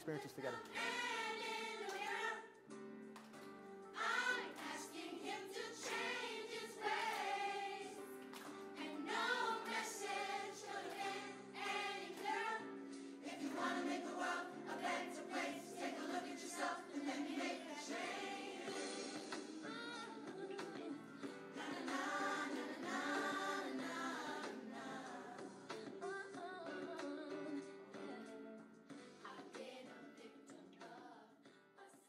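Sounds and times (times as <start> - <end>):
children's choir singing: 0.0 - 2.5, 3.9 - 25.4.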